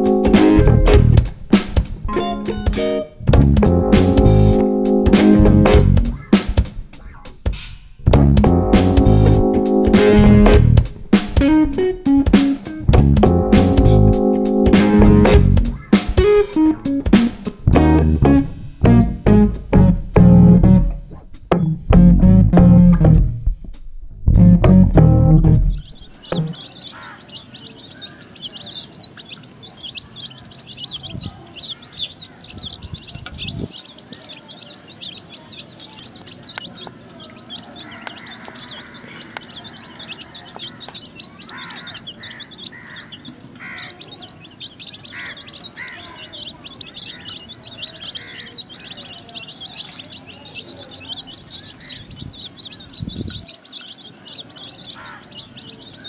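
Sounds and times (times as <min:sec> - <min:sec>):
chicks peeping: 0:00.0 - 0:18.0, 0:25.6 - 0:56.0
low thumps: 0:00.0 - 0:26.6.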